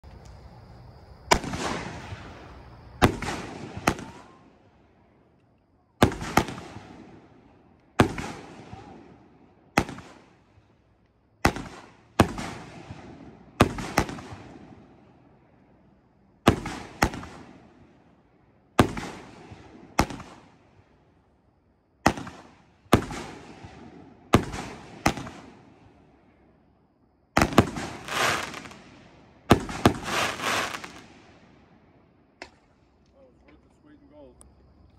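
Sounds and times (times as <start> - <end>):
firework bangs: 1.3 - 4.7, 6.0 - 10.8, 11.4 - 15.2, 16.4 - 18.0, 18.8 - 20.9, 22.0 - 26.1, 27.4 - 31.8.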